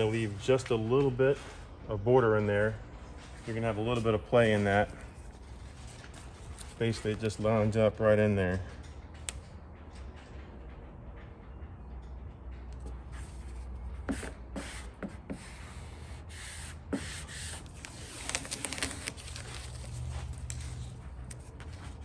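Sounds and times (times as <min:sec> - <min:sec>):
tape peeling off vinyl: 0:13.2 - 0:22.0.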